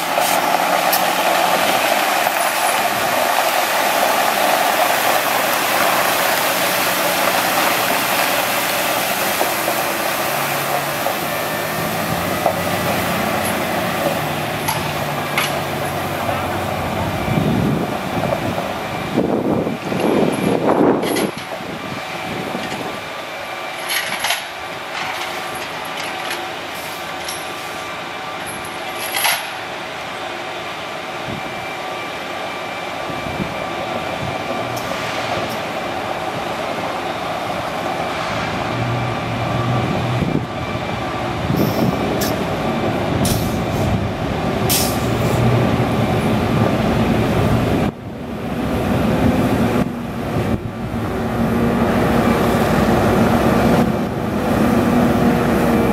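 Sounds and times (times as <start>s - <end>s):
water spraying on gravel: 0.0s - 14.3s
truck engine running: 0.0s - 55.9s
brief sharp hisses: 44.7s - 45.4s.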